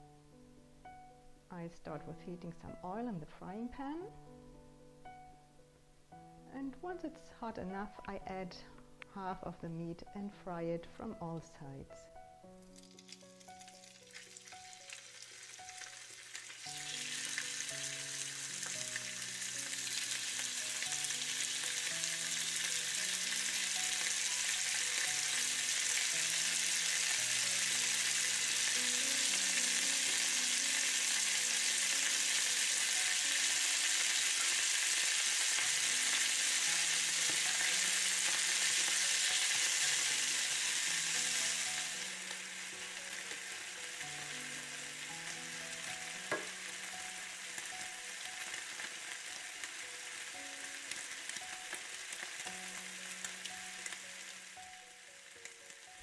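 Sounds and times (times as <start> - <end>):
meat sizzling in oil: 12.5 - 56.0.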